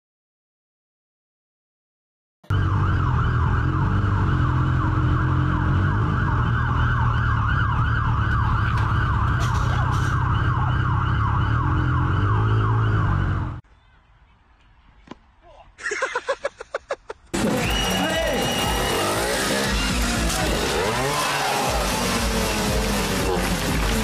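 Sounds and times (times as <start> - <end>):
fire engine siren yelping: 2.5 - 13.6, 17.4 - 23.8.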